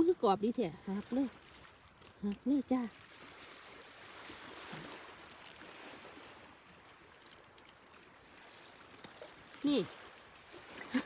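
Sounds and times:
sea surf: 8.3 - 11.0.

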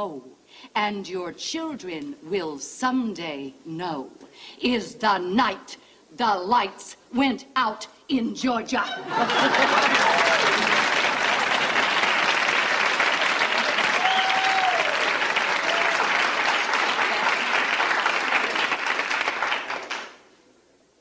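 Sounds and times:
studio audience applauding: 9.1 - 20.3.

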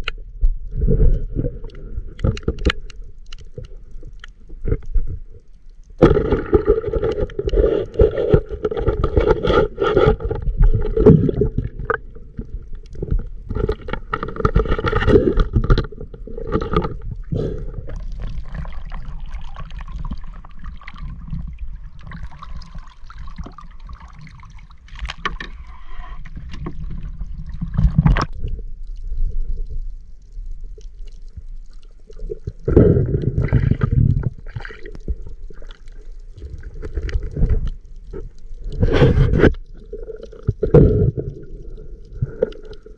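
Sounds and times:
muffled underwater gurgling: 31.9 - 42.9.

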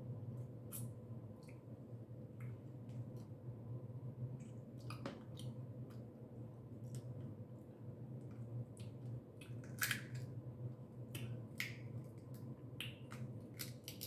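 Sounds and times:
crab shells cracking: 9.5 - 10.3, 11.6 - 14.0.

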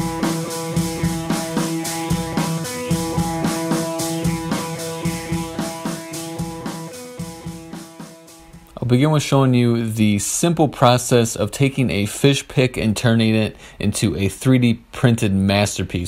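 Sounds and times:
music with steady beat: 0.0 - 9.0.

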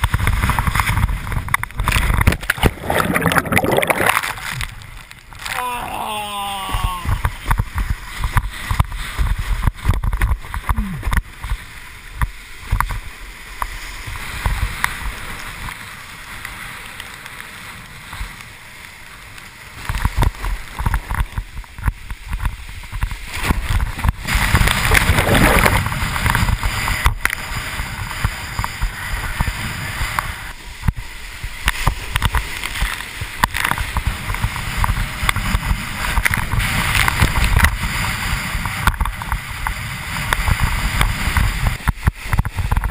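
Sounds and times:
water rushing and splashing: 0.0 - 42.9
wind buffeting microphone: 20.0 - 42.9.

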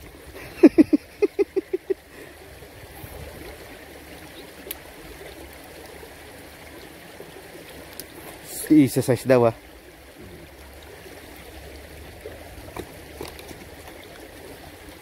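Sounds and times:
stream water over rocks: 0.0 - 15.0.

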